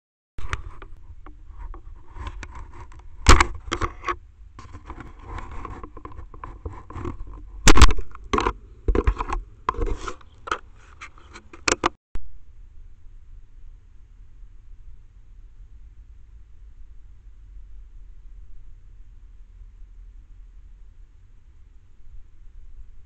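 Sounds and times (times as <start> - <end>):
scraping and rubbing on microphone: 0.4 - 12.0.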